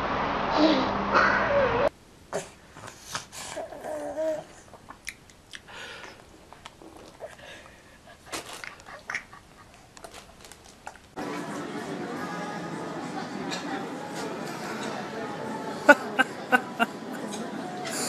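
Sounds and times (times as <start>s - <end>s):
wet mouth smacks: 4.9s - 6.8s.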